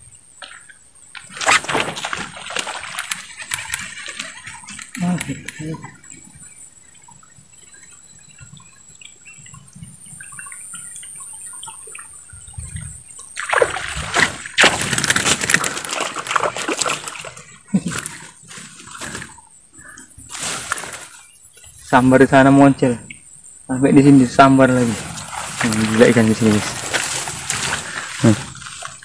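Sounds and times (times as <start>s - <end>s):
fish splashing at water surface: 1.2s - 4.9s, 13.4s - 19.4s, 24.7s - 29.0s.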